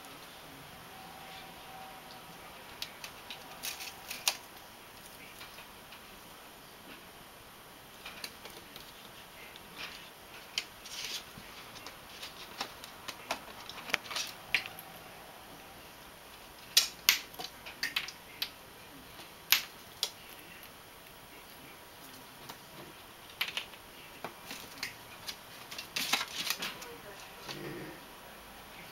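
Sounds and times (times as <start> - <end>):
dry plant stems rustling: 2.1 - 6.2, 7.9 - 18.4, 19.0 - 27.5.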